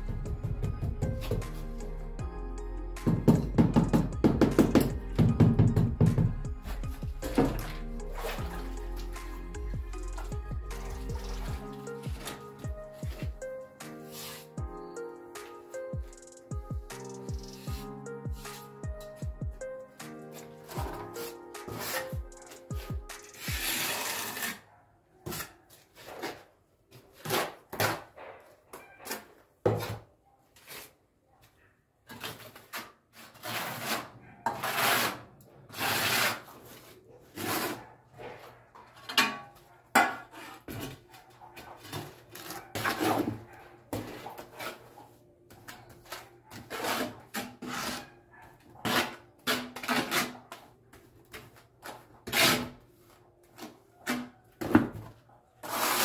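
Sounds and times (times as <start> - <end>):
trowel scraping adhesive: 6.6 - 9.4, 10.2 - 12.4, 13.9 - 14.6, 20.3 - 24.6, 32.2 - 37.9, 46.0 - 48.1, 48.8 - 50.5, 52.2 - 52.8, 55.6 - 56.0.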